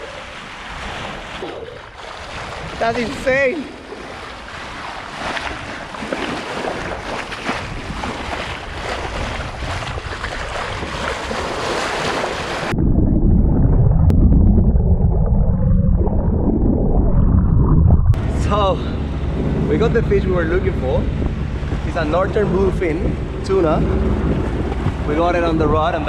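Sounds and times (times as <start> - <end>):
sea water rushing and splashing: 0.0 - 12.8, 18.1 - 26.0
wind on microphone: 0.0 - 26.0
muffled underwater rumble: 12.6 - 26.0.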